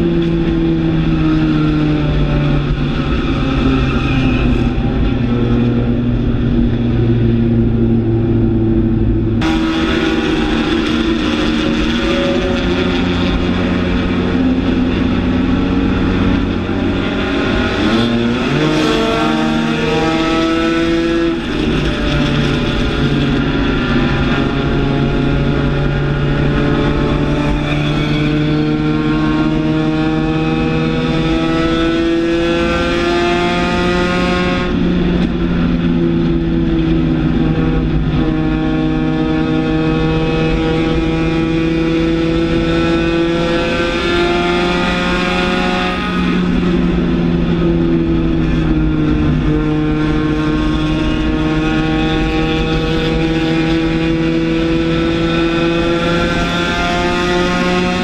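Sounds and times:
race car engine at high revs: 0.0s - 58.0s.

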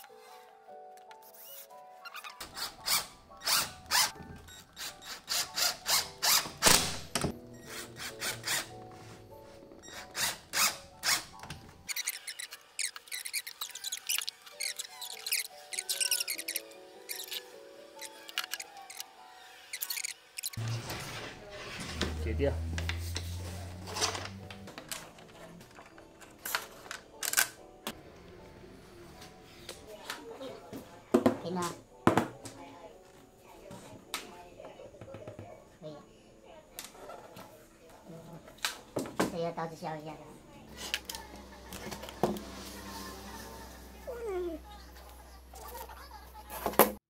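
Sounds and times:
low hum: 20.6s - 25.0s.

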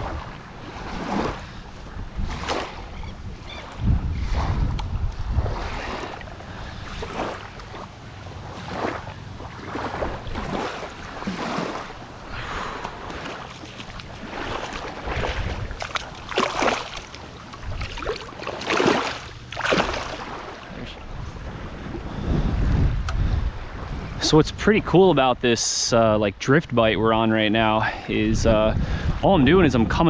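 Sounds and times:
wind on microphone: 0.0s - 7.4s, 14.0s - 16.4s, 17.6s - 18.3s, 20.7s - 24.7s, 27.9s - 30.0s
shallow water lapping: 0.0s - 24.3s
fish splashing in shallows: 8.5s - 20.7s.

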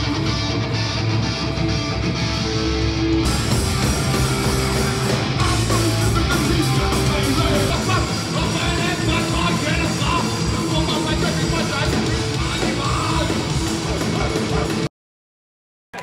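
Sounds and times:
live punk rock band: 0.0s - 14.9s.

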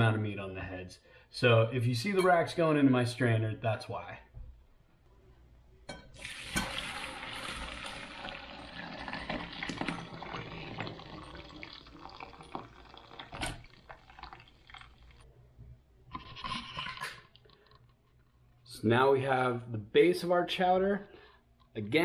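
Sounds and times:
liquid pouring through strainer: 6.2s - 15.2s.

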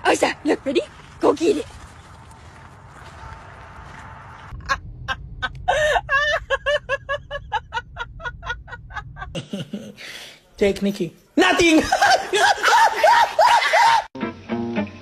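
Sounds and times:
low rumble: 1.7s - 9.4s.

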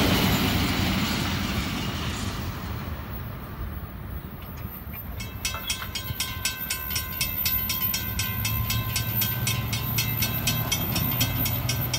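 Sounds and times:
railroad crossing bell ringing: 4.4s - 11.9s
passing car traffic rumble: 8.0s - 11.9s.

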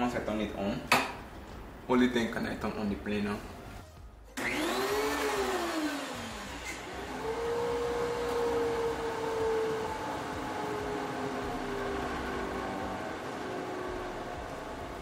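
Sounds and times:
dust collector running: 4.4s - 15.0s
thickness planer motor whining: 4.4s - 15.0s.

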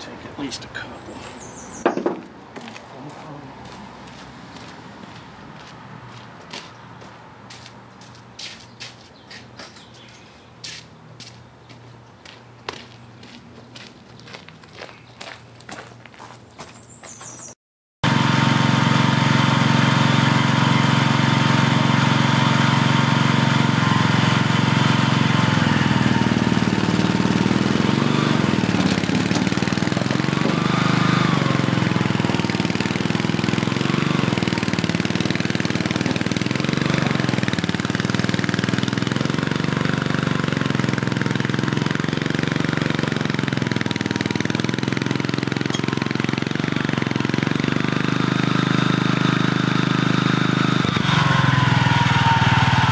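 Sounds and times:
mini loader engine running: 18.0s - 52.9s.

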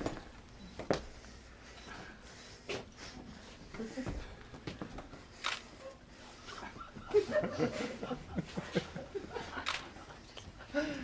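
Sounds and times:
person chuckling: 6.3s - 11.0s.

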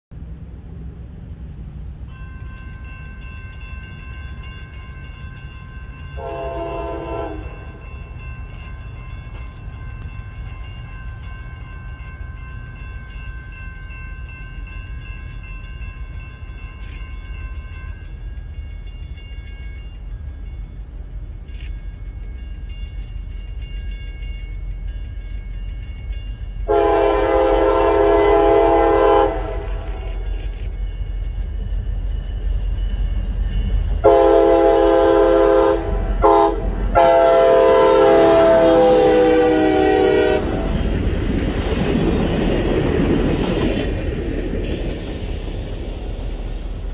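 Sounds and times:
low rumble of train: 0.0s - 46.9s
diesel locomotive horn blasts: 6.2s - 7.8s, 26.6s - 30.3s, 34.0s - 41.0s.

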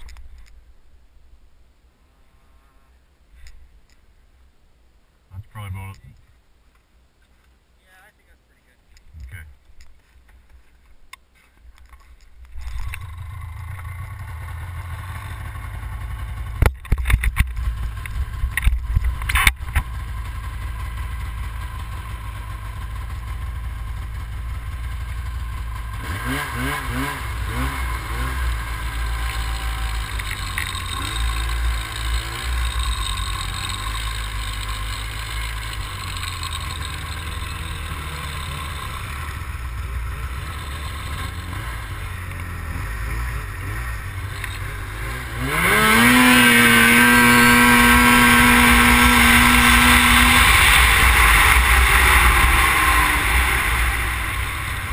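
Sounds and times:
snowmobile engine: 12.6s - 54.9s.

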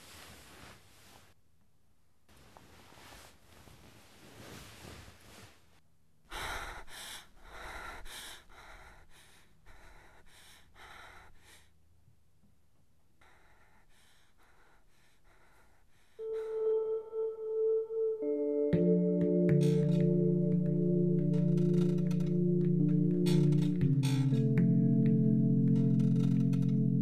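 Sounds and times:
woman gasping and panting: 6.3s - 11.7s, 13.2s - 16.8s
sustained ambient music tone: 16.2s - 27.0s.

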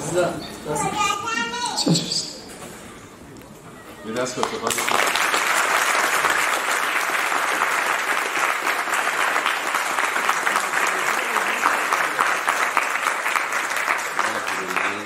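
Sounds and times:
audience applauding: 4.1s - 15.0s.

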